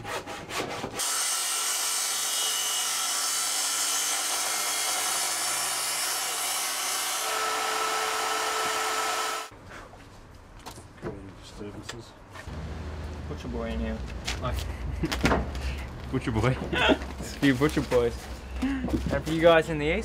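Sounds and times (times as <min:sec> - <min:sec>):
table saw cutting wood: 0:00.0 - 0:09.5.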